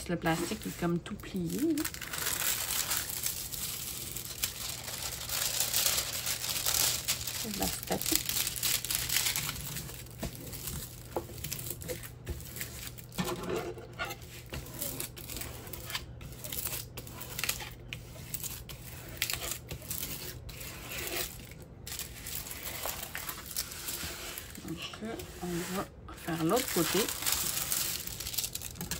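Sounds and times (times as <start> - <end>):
plastic film crinkling: 0.0 - 13.2, 14.3 - 28.9
small crackles: 0.4 - 13.1, 26.4 - 28.9.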